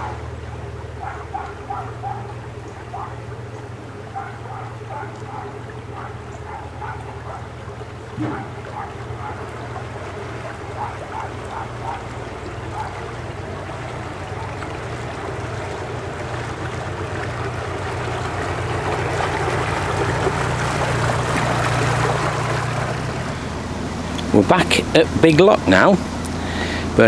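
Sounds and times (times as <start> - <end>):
boat engine humming: 0.0 - 27.0
wind and water rushing: 0.0 - 27.0.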